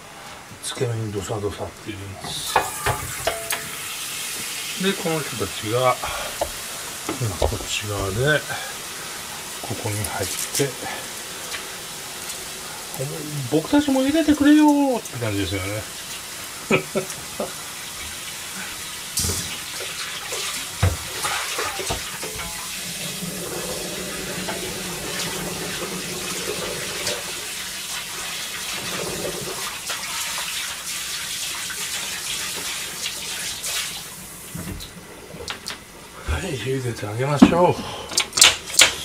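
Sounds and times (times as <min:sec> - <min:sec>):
water boiling in a frying pan: 0:00.0 - 0:39.0
metal strainer knocking on pan: 0:02.6 - 0:03.8.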